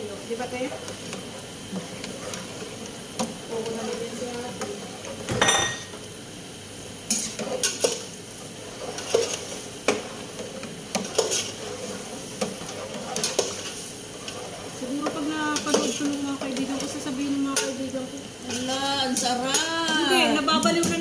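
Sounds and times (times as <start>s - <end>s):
food sizzling in pan: 0.0s - 21.0s
utensil scraping pan: 7.1s - 17.8s.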